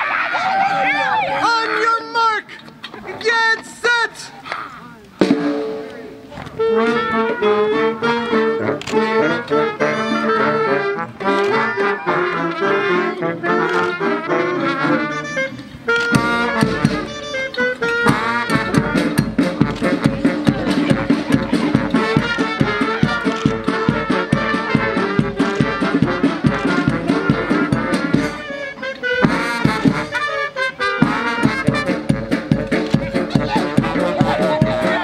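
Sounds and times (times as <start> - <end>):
quick steady drumbeat: 5.2 - 5.9, 18.1 - 28.4, 29.2 - 30.3, 31.0 - 35.0
brass band music: 5.2 - 35.0.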